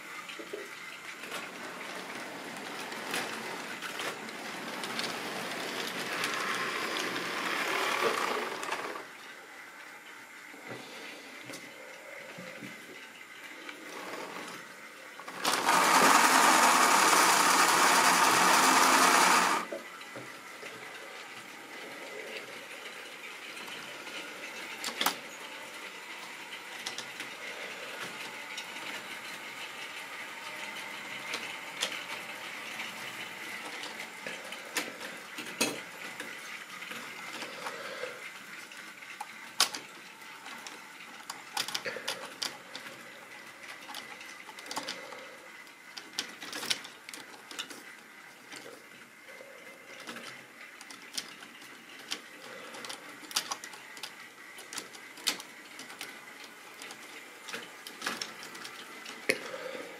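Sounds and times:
plastic wagon clicking on rails: 0:01.3 - 0:09.1, 0:45.9 - 0:48.9, 0:49.9 - 0:59.4
model train motor whirring: 0:01.6 - 0:09.2, 0:13.7 - 0:19.7.

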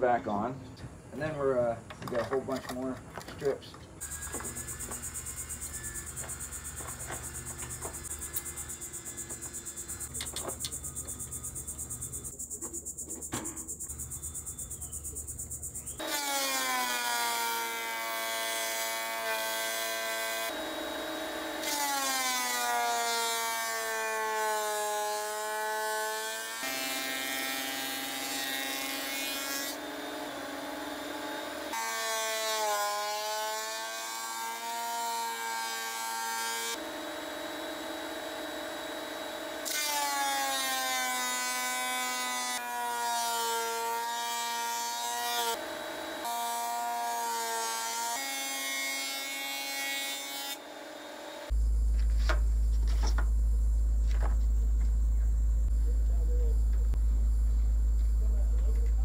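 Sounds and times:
thickness planer planing wood: 0:16.0 - 0:51.5.

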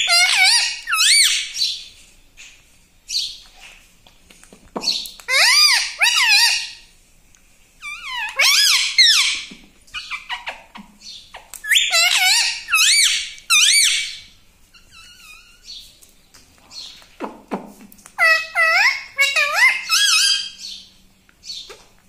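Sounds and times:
parakeet calling: 0:00.0 - 0:01.9, 0:04.9 - 0:06.9, 0:07.8 - 0:15.9, 0:18.2 - 0:21.8.

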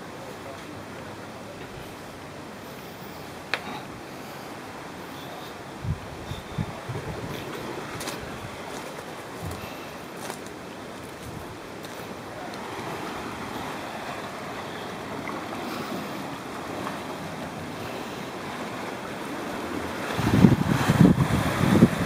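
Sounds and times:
wind and sea: 0:00.0 - 0:22.0
wind buffeting microphone: 0:04.6 - 0:22.0.

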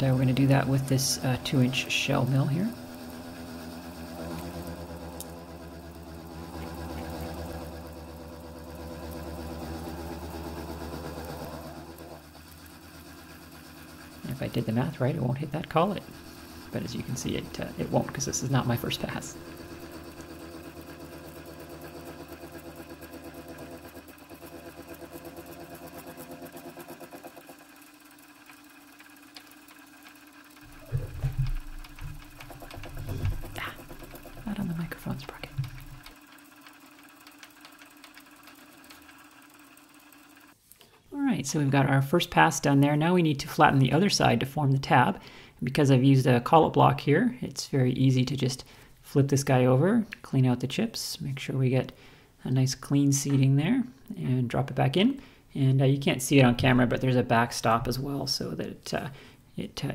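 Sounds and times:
mill cutting metal: 0:00.0 - 0:40.6
milling machine motor hum: 0:00.0 - 0:45.4.

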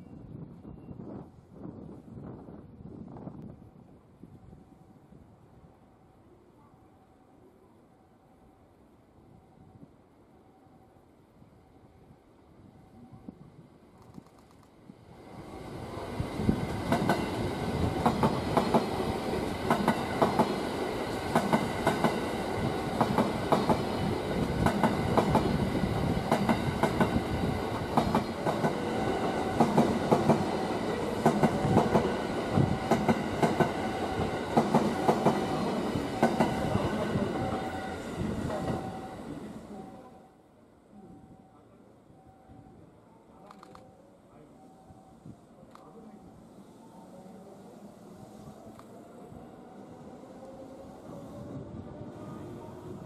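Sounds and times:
train wheels clickety-clack: 0:16.5 - 0:37.7.

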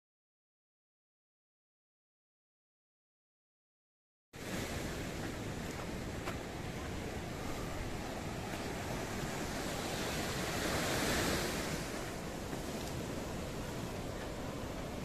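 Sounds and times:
surf breaking over rocks: 0:04.4 - 0:15.0
wind rumbling on microphone: 0:04.4 - 0:15.0.

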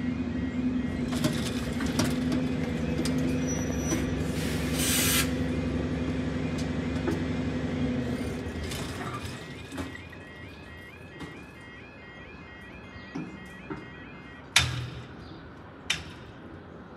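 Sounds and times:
level crossing alarm warbling: 0:00.0 - 0:04.3, 0:05.3 - 0:15.5
burst of hiss: 0:04.4 - 0:05.3.

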